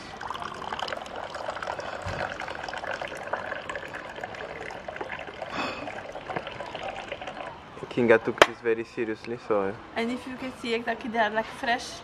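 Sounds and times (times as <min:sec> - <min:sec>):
tea pouring into a glass: 0:00.0 - 0:08.0.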